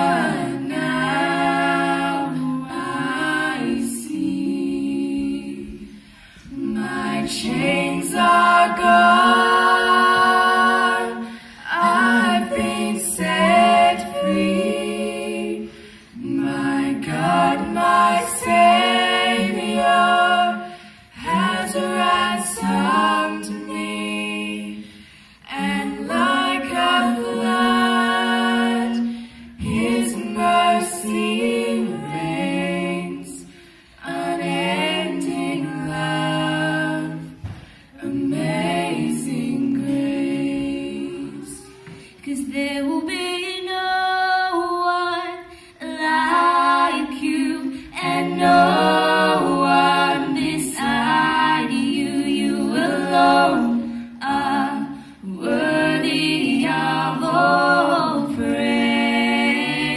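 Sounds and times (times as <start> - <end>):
vocal group singing a hymn: 0.0 - 59.9.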